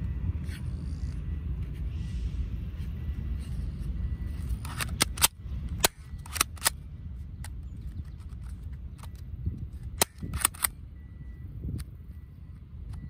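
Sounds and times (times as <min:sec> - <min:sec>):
pistol mechanical clicks: 0:04.4 - 0:10.9.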